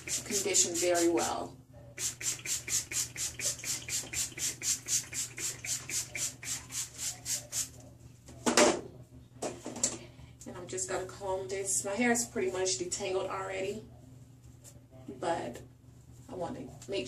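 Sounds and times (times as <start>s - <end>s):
pump spray bottle spraying: 0.0s - 1.2s, 2.0s - 7.7s.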